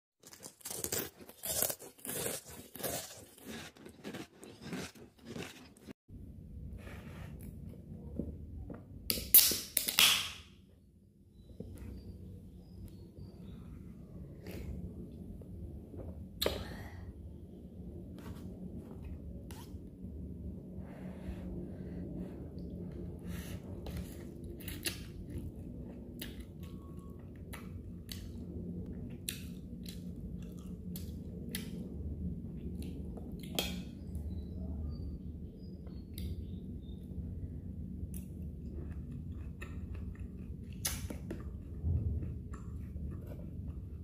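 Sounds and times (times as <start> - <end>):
soda can opening pop: 9.1 - 10.5.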